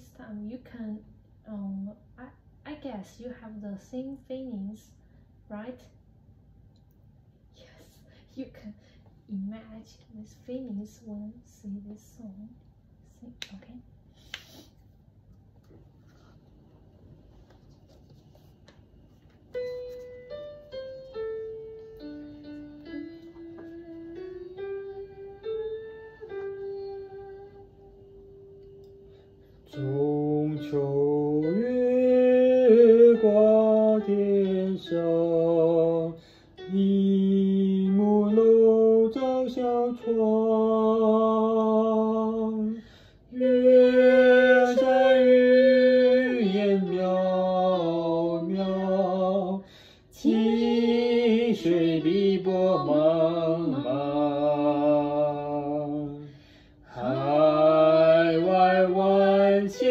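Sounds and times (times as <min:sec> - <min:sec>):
person singing slow melody: 0:22.4 - 0:59.9.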